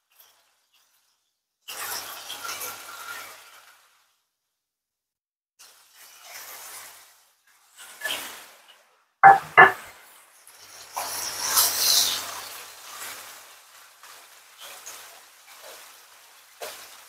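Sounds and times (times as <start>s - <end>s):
fish frying in hot oil: 0.0s - 4.2s, 5.6s - 17.0s
metal lid clanking on pot: 9.2s - 9.8s.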